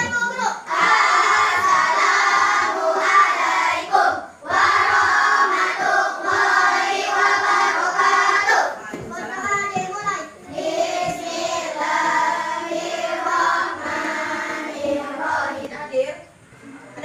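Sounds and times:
children chanting in unison: 0:00.0 - 0:08.8, 0:10.5 - 0:15.7.

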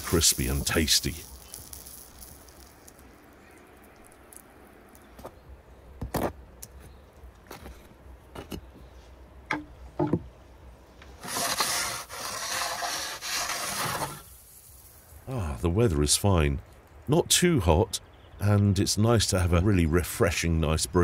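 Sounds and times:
wooden peel scraping brick floor: 0:00.0 - 0:03.0, 0:11.1 - 0:15.0.

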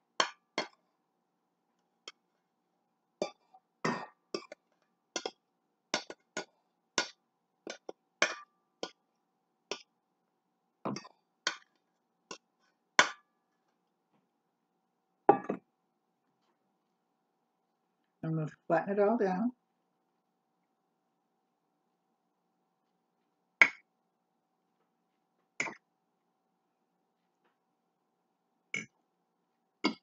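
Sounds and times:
knock on a bowl: 0:15.3 - 0:15.6.

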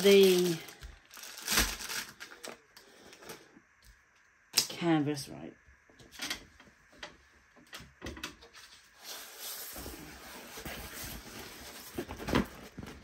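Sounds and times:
sharp crackle: 0:00.0 - 0:02.6
plastic film rustling and crinkling: 0:00.0 - 0:03.4, 0:08.7 - 0:13.0.

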